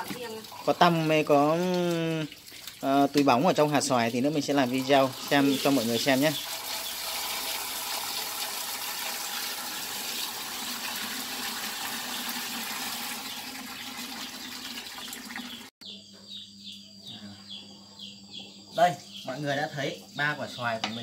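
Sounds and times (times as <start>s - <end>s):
tap water pouring into basin: 0.0s - 15.7s.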